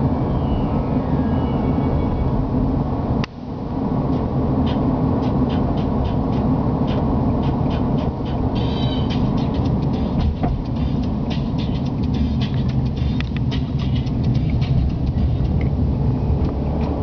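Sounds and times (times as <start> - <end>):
car road and engine noise: 0.0 - 17.0
faint high ticks: 9.3 - 15.7.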